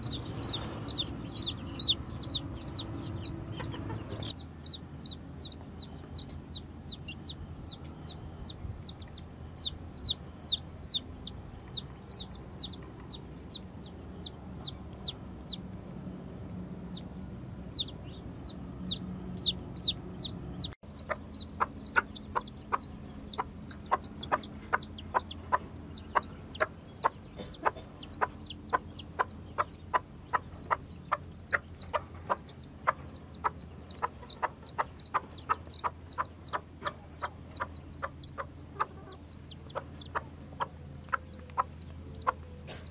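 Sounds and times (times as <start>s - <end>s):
chicks peeping: 0.0s - 15.6s, 16.8s - 42.9s.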